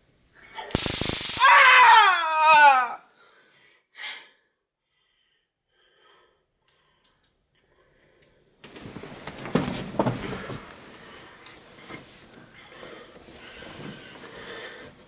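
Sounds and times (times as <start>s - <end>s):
faint breathing: 3.1s - 8.6s, 10.2s - 15.0s
cloth rustling: 8.7s - 15.0s.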